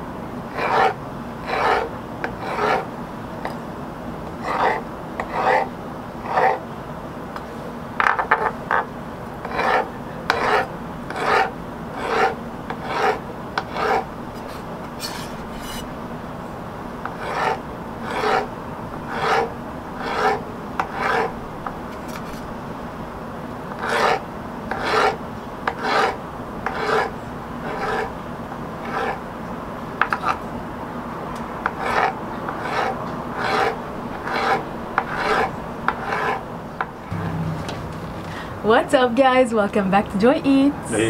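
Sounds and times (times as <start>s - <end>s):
knife slicing on wooden board: 12.1s - 15.9s.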